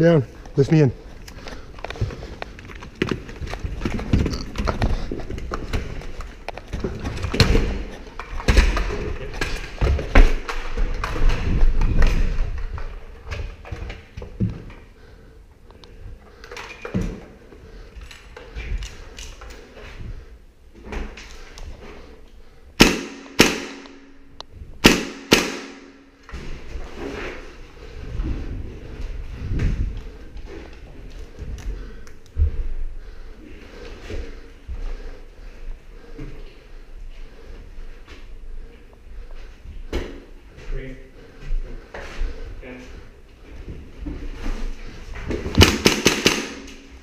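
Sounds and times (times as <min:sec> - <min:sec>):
airsoft rifle shots: 0:22.8 - 0:24.1, 0:24.8 - 0:26.0, 0:45.6 - 0:46.8.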